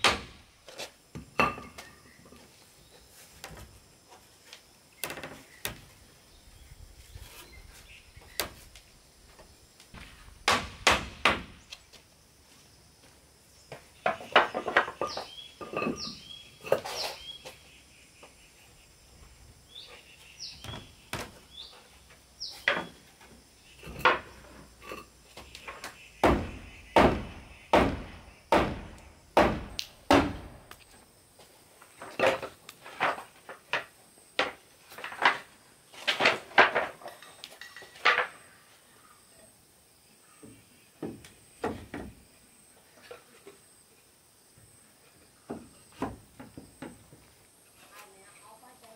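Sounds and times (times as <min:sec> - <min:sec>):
hammer blows on wooden timbers: 0:25.6 - 0:30.6.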